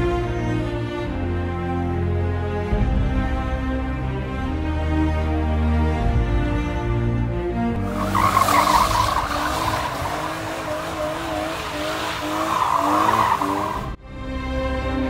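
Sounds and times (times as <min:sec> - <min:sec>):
background music: 0:00.0 - 0:15.0
car engine revving: 0:07.8 - 0:14.0
tyres squealing and skidding: 0:07.8 - 0:14.0.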